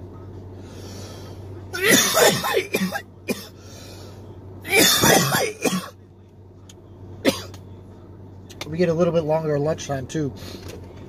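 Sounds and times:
man coughing: 1.8s - 3.6s, 4.7s - 5.9s, 7.3s - 7.6s.

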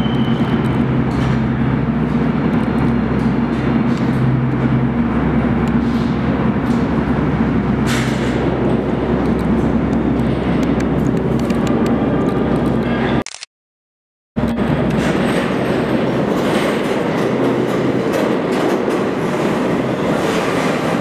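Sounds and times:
subway train rumbling in tunnel: 0.0s - 13.2s, 14.4s - 21.0s.

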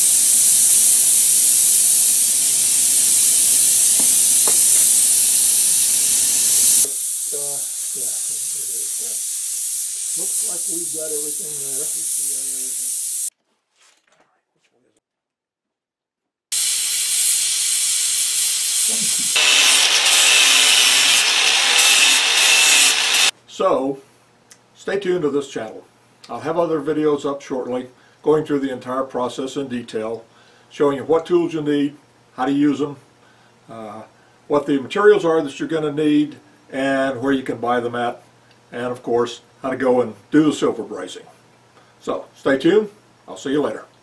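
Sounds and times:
angle grinder grinding metal: 0.0s - 13.3s, 16.6s - 23.3s
torch flame hissing: 0.0s - 13.3s, 16.5s - 23.3s.

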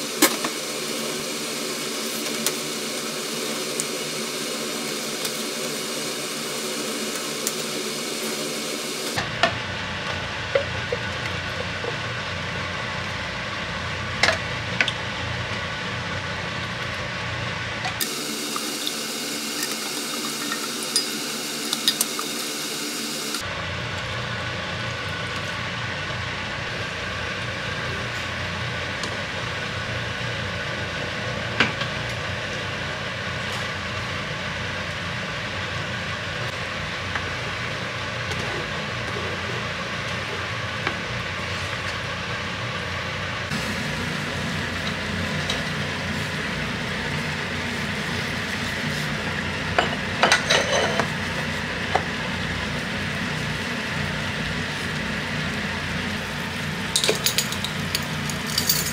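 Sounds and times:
water at a rolling boil: 0.0s - 58.9s
utensils clinking: 56.9s - 58.9s.

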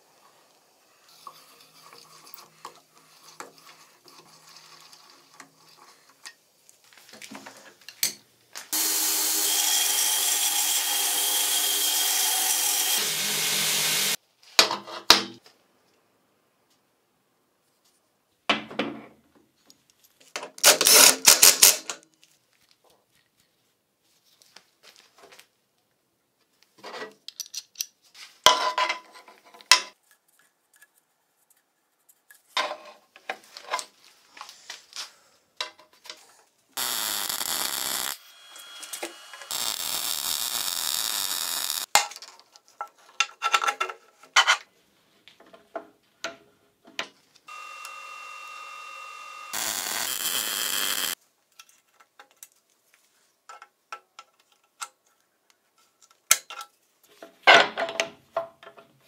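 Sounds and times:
power tool running: 8.7s - 14.2s, 36.8s - 41.9s, 47.5s - 51.2s.

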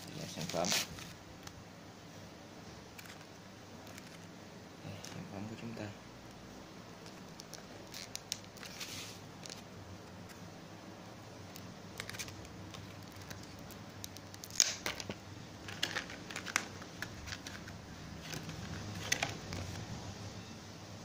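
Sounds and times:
plastic packaging crinkling: 0.0s - 1.2s, 7.0s - 9.6s, 11.5s - 19.8s.

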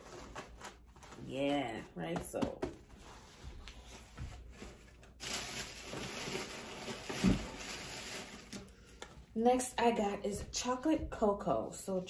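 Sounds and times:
basket and fabric rustling: 3.0s - 8.6s.

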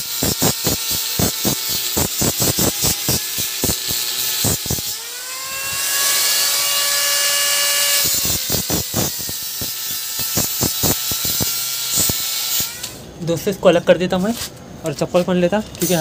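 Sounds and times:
small motor whining: 0.0s - 13.0s.

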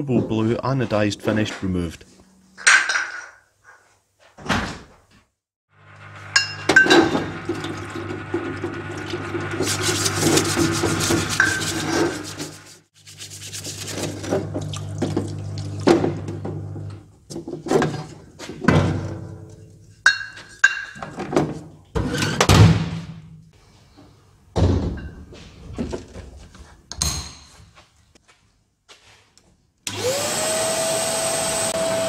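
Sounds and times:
pump hum: 5.7s - 12.7s
water running and splashing: 7.4s - 15.9s
brush scrubbing metal: 9.3s - 14.7s.

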